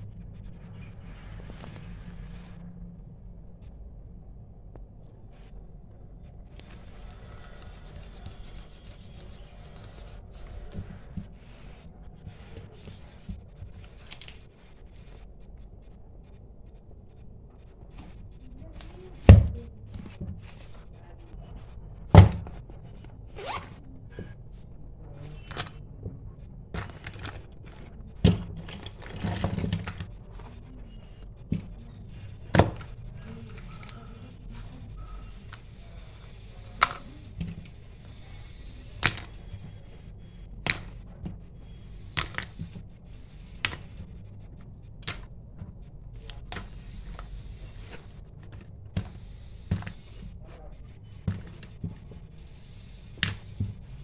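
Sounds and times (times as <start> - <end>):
paper rustling: 0.3 - 2.6, 6.4 - 15.9, 26.7 - 36.0.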